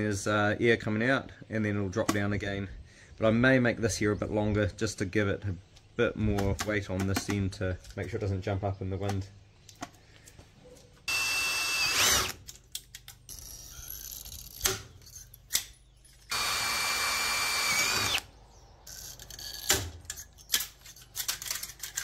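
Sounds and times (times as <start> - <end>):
handling clicks and knocks: 6.2 - 8.3, 19.6 - 22.0
cordless drill driving screws: 11.1 - 12.4, 16.3 - 18.3.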